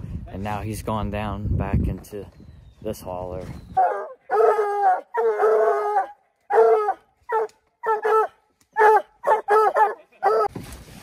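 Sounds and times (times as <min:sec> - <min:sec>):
hounds baying and barking: 0:03.7 - 0:10.5.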